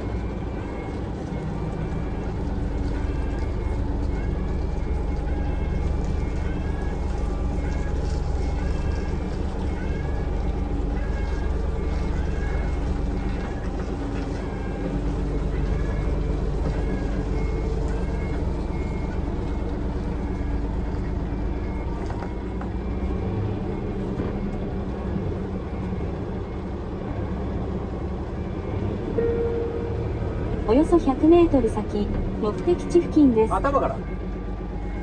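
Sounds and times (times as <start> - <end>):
truck engine and road rumble: 0.0 - 35.0
faint short beep: 29.2 - 30.1.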